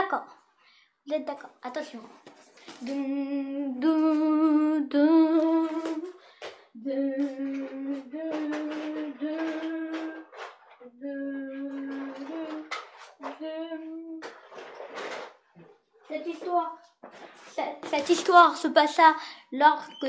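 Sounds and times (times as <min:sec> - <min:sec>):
person humming: 0:02.8 - 0:06.1, 0:06.8 - 0:10.3, 0:10.9 - 0:12.7.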